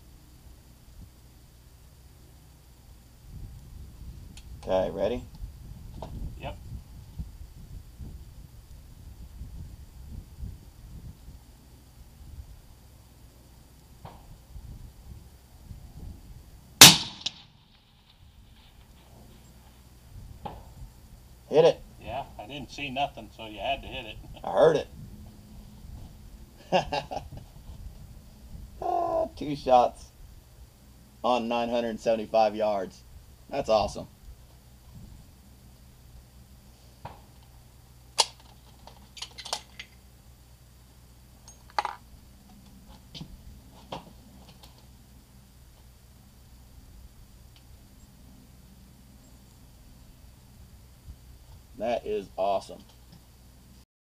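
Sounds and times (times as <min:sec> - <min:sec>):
suppressed rifle shot: 0:16.8 - 0:18.2
sharp crack: 0:16.8 - 0:19.0, 0:38.1 - 0:38.6.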